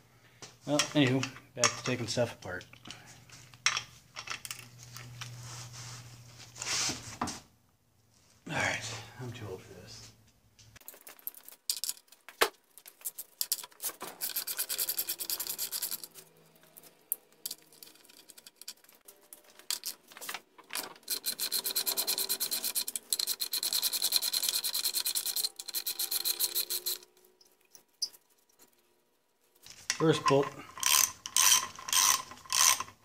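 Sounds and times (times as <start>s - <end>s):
ratchet wrench clicking: 14.2s - 16.2s, 21.0s - 27.1s, 30.8s - 33.0s.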